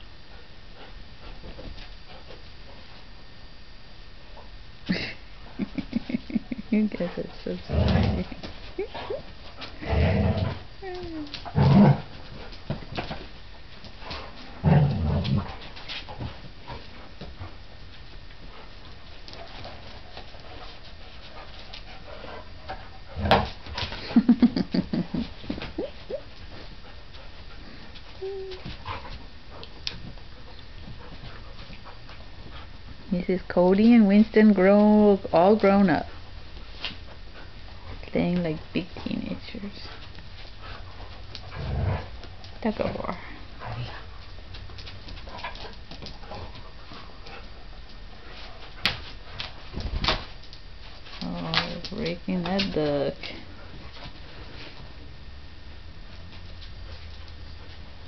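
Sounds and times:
low steady hum: 0:00.0 - 0:58.0
faint dog noises: 0:05.7 - 0:12.1, 0:25.0 - 0:29.8.

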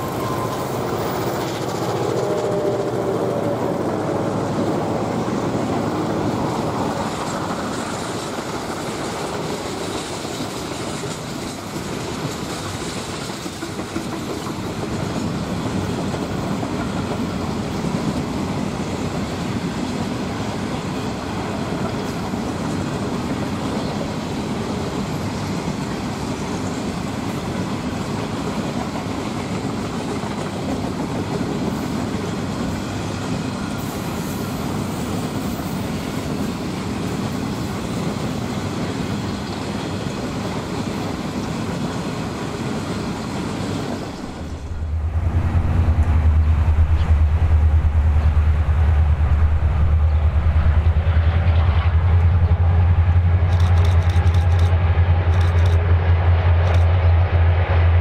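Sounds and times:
freight train wheels on rails: 0:00.0 - 0:58.0.

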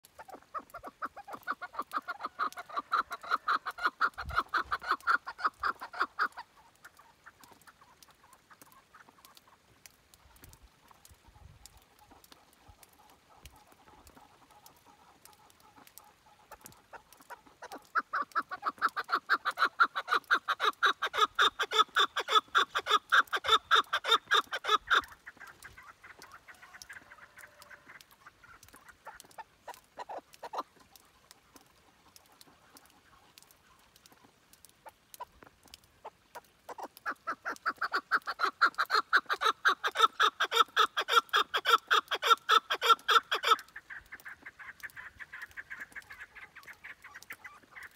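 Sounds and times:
partridge clucking call: 0:00.0 - 0:47.9.

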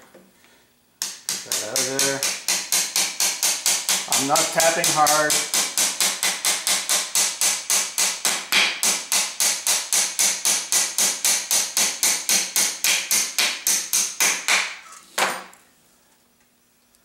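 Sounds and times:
hammer tapping on metal shaft: 0:01.0 - 0:14.6.

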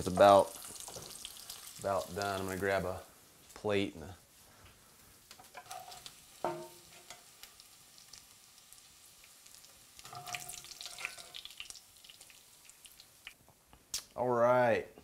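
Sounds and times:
bacon sizzling: 0:00.0 - 0:03.0, 0:04.8 - 0:13.4.

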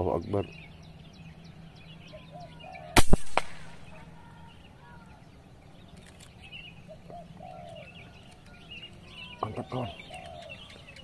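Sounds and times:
birds chirping: 0:00.0 - 0:11.0
air rifle crack: 0:03.0 - 0:03.9.

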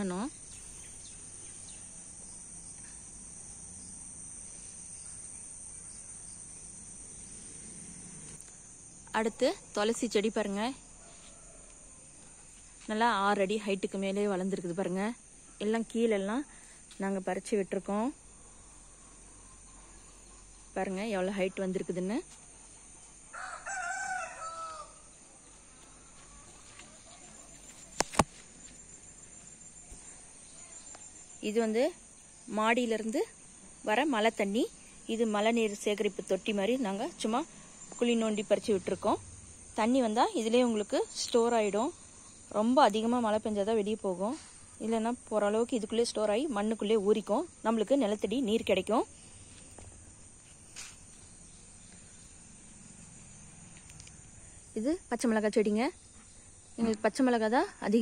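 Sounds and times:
insects chirring: 0:00.0 - 0:58.0
rooster crowing: 0:10.9 - 0:12.1, 0:23.3 - 0:25.2.

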